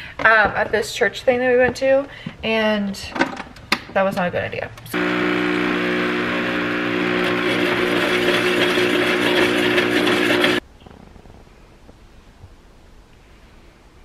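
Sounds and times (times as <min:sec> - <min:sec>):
espresso machine humming and hissing: 0:04.9 - 0:10.6.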